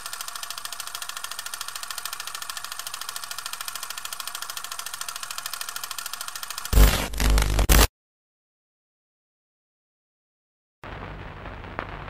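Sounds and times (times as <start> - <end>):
film projector clattering: 0.0 - 6.8.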